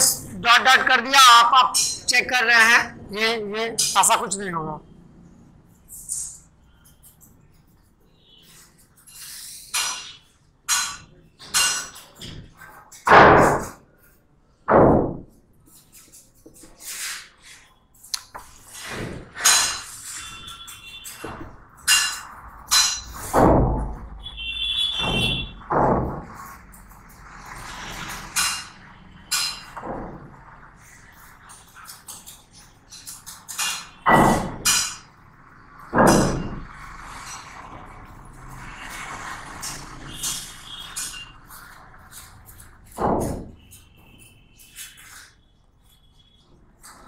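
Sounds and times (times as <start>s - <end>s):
marker pen squeaking on whiteboard: 5.8s - 10.4s, 15.6s - 21.4s, 43.6s - 47.0s.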